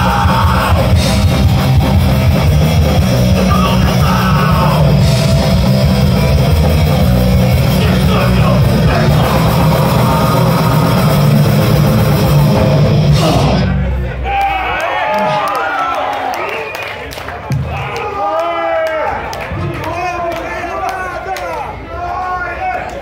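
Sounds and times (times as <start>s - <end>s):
vocalist singing: 0.0s - 1.8s, 3.1s - 5.6s, 7.6s - 13.9s
electric guitars: 0.0s - 14.0s
drums: 0.0s - 15.4s, 17.2s - 20.0s.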